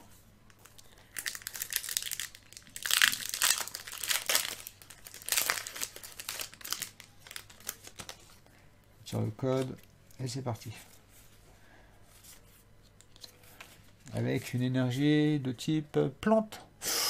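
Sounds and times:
foil wrapper crinkling: 0.6s - 8.5s.

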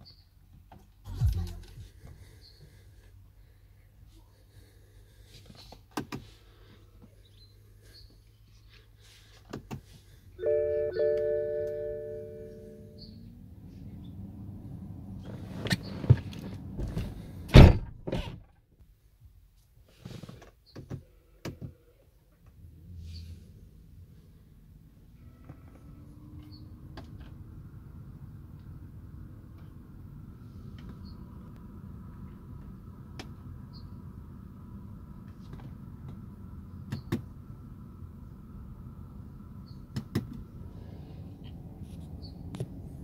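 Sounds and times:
low rumble: 1.1s - 2.8s
low hum: 1.1s - 3.6s, 10.4s - 15.4s
car doors clicking and knocking: 15.8s - 18.5s
heavy thunk: 17.5s - 18.4s.

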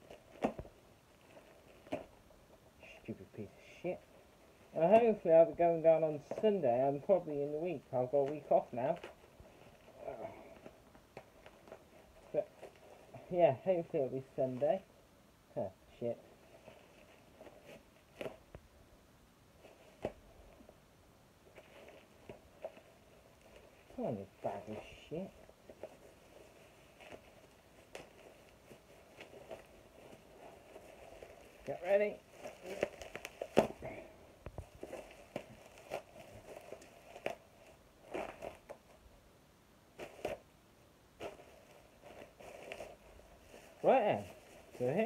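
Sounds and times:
plastic bag crinkling: 21.5s - 39.0s.

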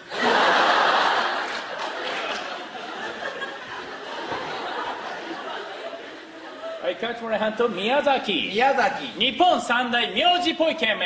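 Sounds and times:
audience laughing: 0.0s - 7.0s.

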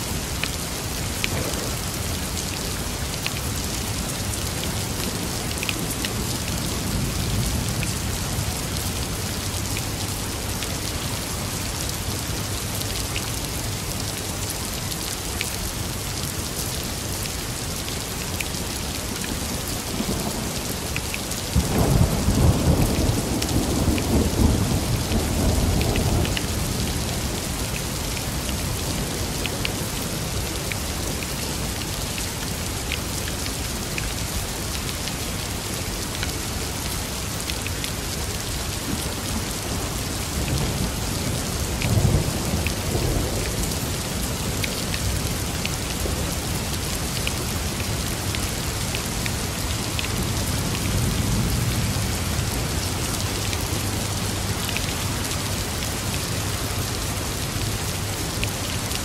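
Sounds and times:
steady rain: 0.0s - 59.0s
rain drop ticks: 1.2s - 2.6s.

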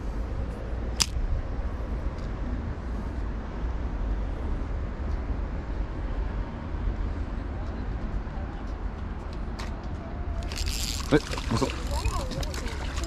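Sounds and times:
low rumble of traffic: 0.0s - 13.0s
fishing rod swish: 10.4s - 13.0s.

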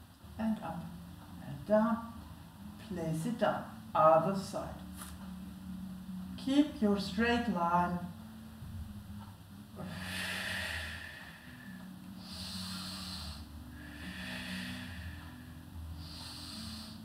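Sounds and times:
woman breathing heavily: 9.7s - 17.0s.

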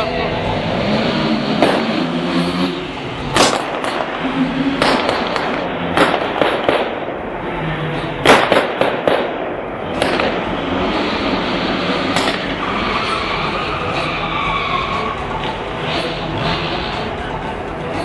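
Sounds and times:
pyrotechnic bangs: 3.3s - 7.4s, 8.2s - 11.4s.

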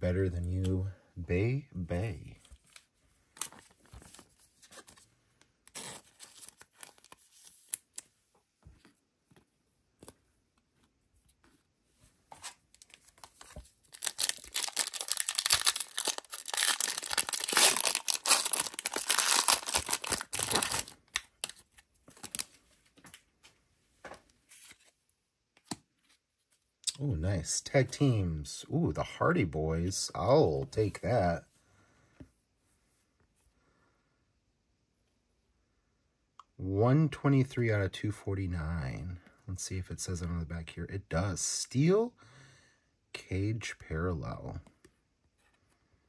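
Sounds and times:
foil wrapper crackling: 13.9s - 21.1s.

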